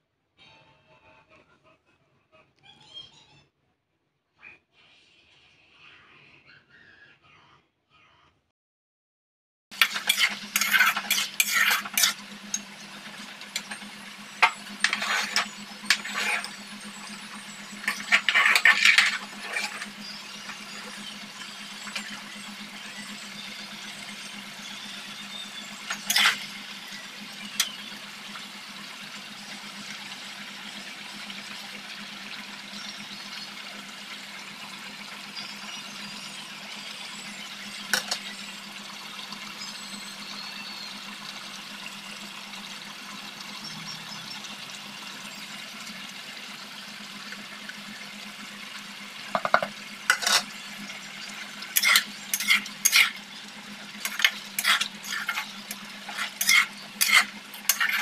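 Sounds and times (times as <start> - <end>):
metal spatula clinking on pan: 9.8 - 12.6, 17.8 - 19.9, 51.8 - 53.1, 54.0 - 58.0
chicken sizzling in oil: 9.8 - 58.0.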